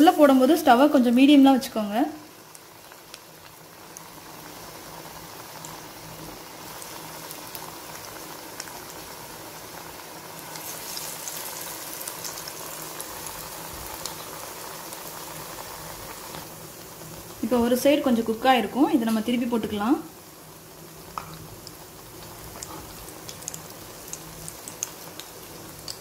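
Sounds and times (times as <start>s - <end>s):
food deep-frying in oil: 0.0s - 26.0s
oil crackles: 21.2s - 26.0s.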